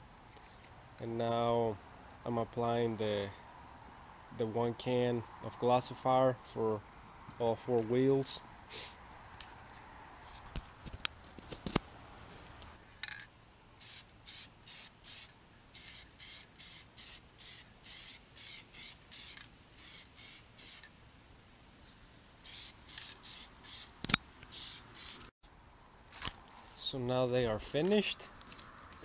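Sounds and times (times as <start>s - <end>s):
aerosol can spraying: 13.8s - 20.9s, 22.4s - 23.9s, 24.5s - 25.3s
sharp click: 24.0s - 24.5s.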